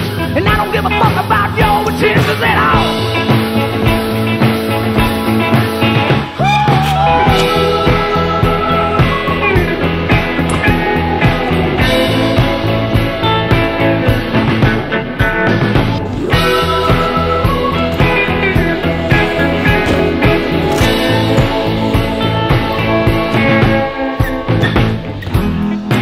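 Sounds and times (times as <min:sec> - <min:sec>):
rock music with drum beat: 0:00.0 - 0:26.0.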